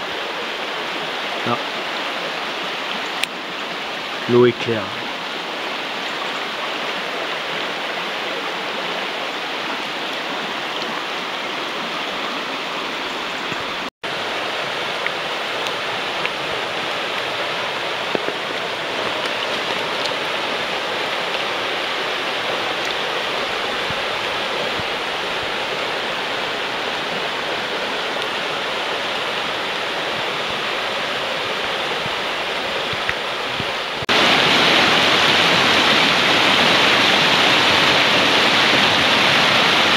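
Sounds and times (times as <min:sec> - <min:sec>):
stream rushing over stones: 0:00.0 - 0:39.9.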